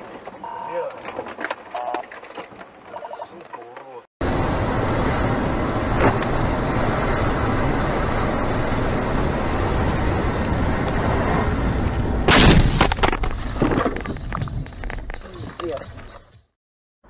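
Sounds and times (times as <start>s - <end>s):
car road and engine noise: 3.6s - 16.5s
car collision crash: 12.3s - 14.0s.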